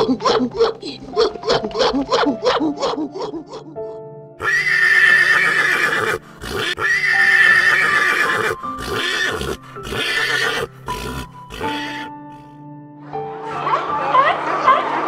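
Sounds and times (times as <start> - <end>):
background music: 0.0 - 15.0
horse neighing: 4.4 - 12.5.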